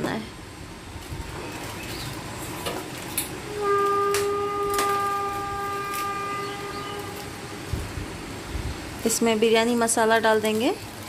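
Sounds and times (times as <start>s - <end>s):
long steady horn: 3.2s - 9.2s.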